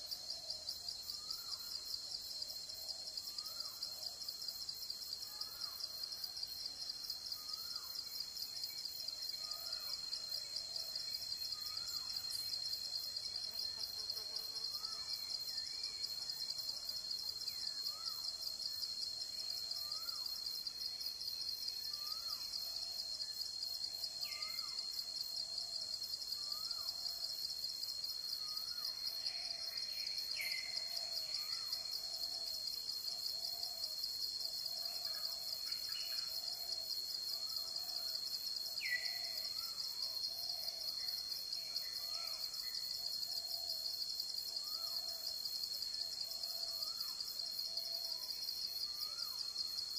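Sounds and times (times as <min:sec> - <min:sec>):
pulsing insect chorus: 0:00.0 - 0:49.9.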